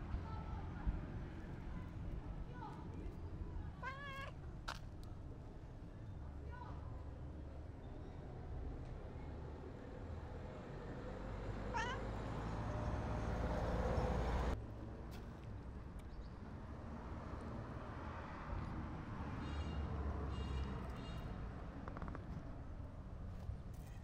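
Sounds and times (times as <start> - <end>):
cat meowing: 11.7 - 12.0.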